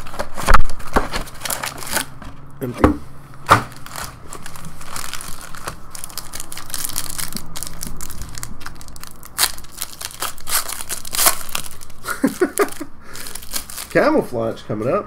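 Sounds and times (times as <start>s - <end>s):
foil wrapper crinkling: 0.0s - 2.4s, 3.6s - 14.6s.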